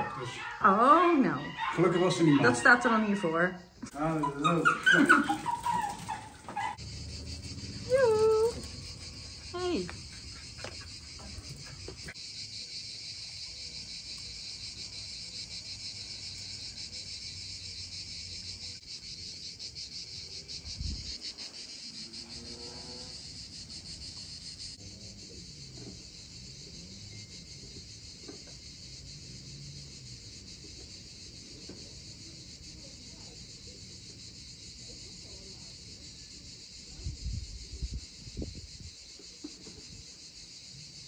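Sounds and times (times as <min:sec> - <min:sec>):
insects shrilling: 0:02.2 - 0:25.4.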